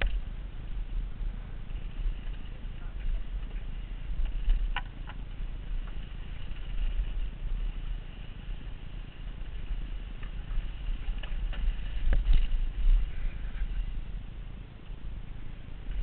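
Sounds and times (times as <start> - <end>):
bike clicks and knocks: 0.0 - 0.3, 3.4 - 7.2, 9.2 - 12.6
wind rumble on microphone: 0.0 - 16.0.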